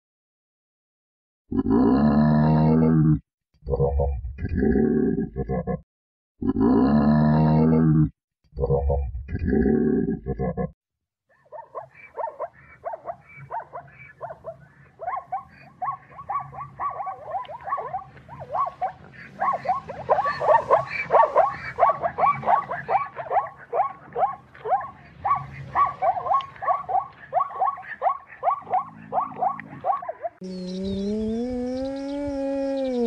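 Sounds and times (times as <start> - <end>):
zebras barking yelps: 11.3 - 30.4.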